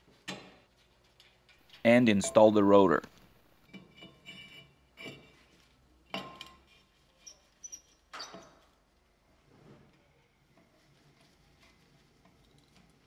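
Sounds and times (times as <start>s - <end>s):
metallic clinks and scrapes: 3.6s - 8.8s.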